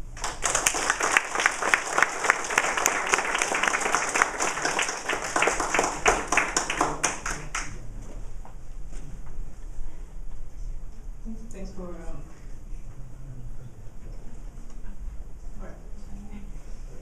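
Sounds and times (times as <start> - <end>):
small audience applauding: 0.0 - 7.8.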